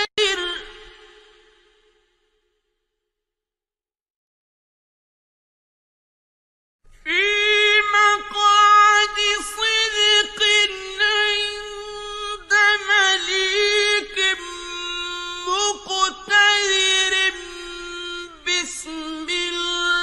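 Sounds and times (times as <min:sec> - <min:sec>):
man reciting melodically: 0:00.0 - 0:01.1, 0:07.1 - 0:20.0.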